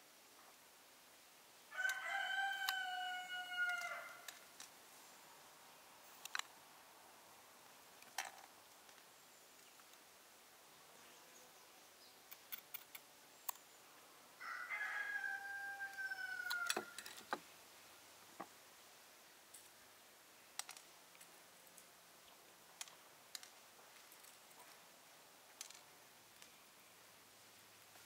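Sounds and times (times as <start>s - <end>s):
rooster crowing: 1.7s - 4.3s, 14.4s - 17.1s.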